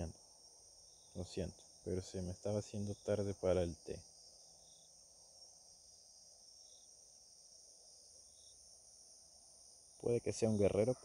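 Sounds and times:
faint high-pitched hiss: 0:00.0 - 0:11.0.

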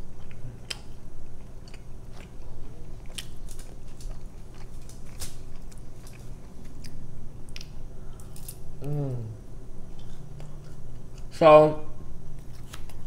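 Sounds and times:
chewing with wet mouth sounds: 0:00.0 - 0:08.3.

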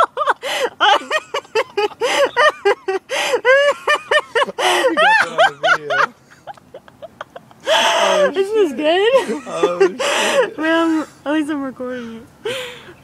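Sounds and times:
person giggling: 0:00.1 - 0:08.4.

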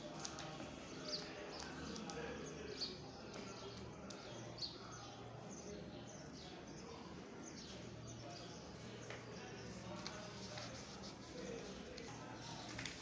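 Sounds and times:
faint background ambience: 0:00.0 - 0:13.0.

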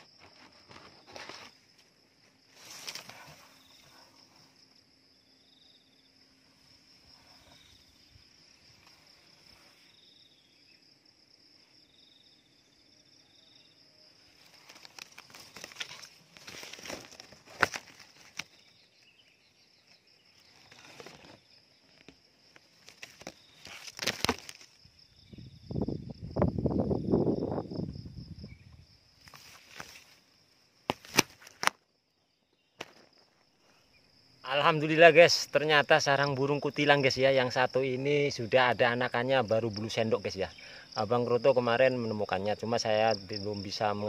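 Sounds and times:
leaves and twigs rustling: 0:00.0 - 0:05.2, 0:14.1 - 0:32.0.

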